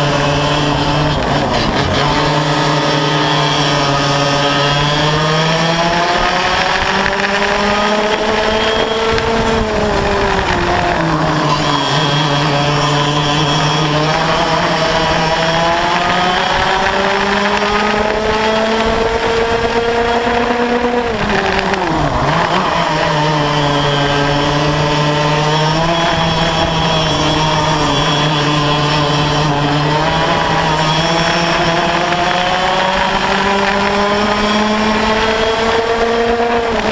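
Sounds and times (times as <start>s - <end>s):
kart engines racing: 0.0s - 36.9s.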